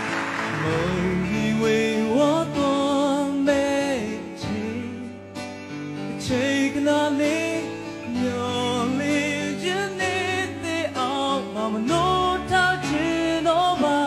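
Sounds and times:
live band playing: 0.0s - 2.9s
electric guitar: 0.0s - 14.0s
man singing pop song: 0.5s - 14.0s.

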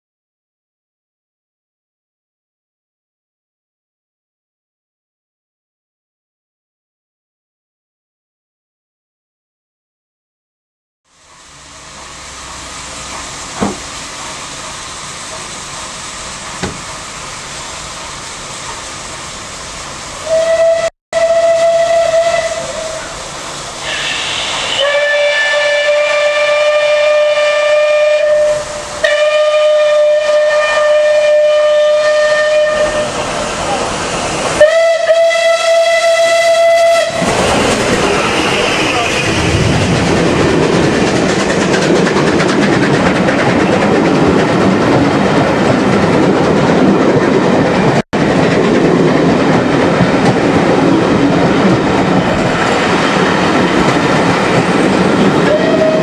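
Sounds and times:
steam train passing close: 11.1s - 56.0s
train running noise: 11.1s - 56.0s
steam locomotive whistle blasts: 20.2s - 23.2s, 23.8s - 33.2s, 34.6s - 37.3s, 55.4s - 56.0s.

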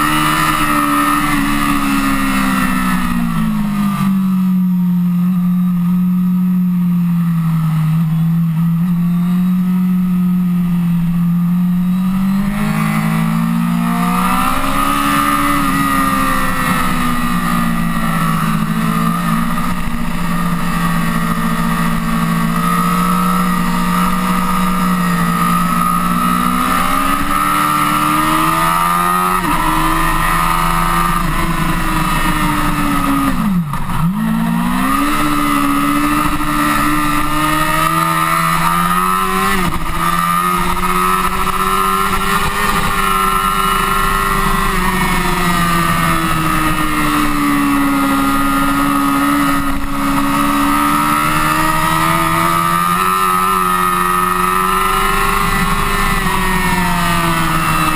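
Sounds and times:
motorcycle engine running hard: 0.0s - 57.9s.

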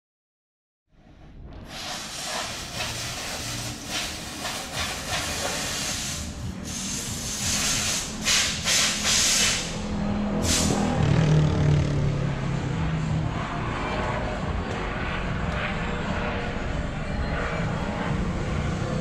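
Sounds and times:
low droning hum: 1.0s - 19.0s
pneumatic tool hissing air: 1.6s - 10.9s.

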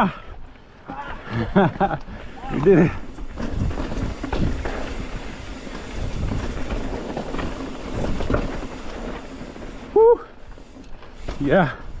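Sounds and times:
bike rumbling over rocks: 0.8s - 12.0s
wind noise on microphone: 3.2s - 9.2s.

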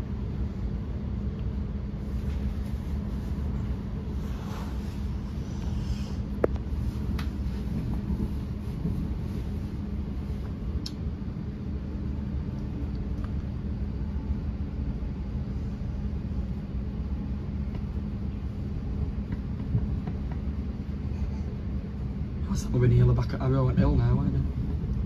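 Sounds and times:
constant low hum: 0.0s - 25.0s
train running rumble: 0.0s - 25.0s
faint click: 10.8s - 11.0s.

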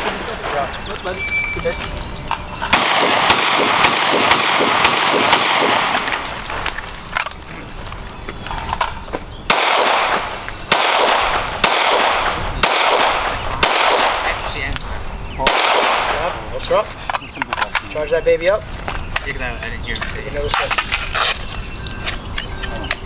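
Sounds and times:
rifle shots with echo: 2.7s - 6.5s, 9.5s - 14.7s, 15.4s - 16.5s.

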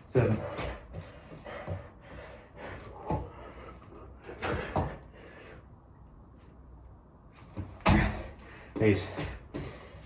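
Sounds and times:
thuds on exercise mat: 7.6s - 8.3s.

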